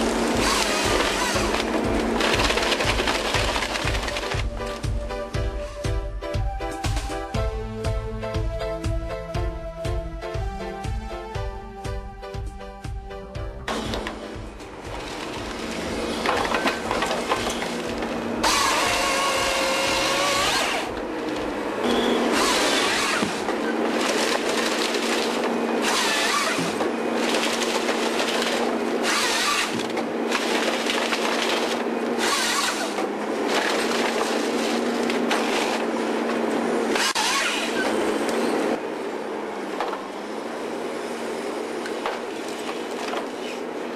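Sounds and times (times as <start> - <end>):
chainsaw cutting wood: 0.0 - 4.5, 13.7 - 38.6
wood cracking and breaking: 0.0 - 4.9, 13.7 - 21.6, 22.3 - 37.9
machine engine humming: 0.0 - 11.8, 12.4 - 43.9.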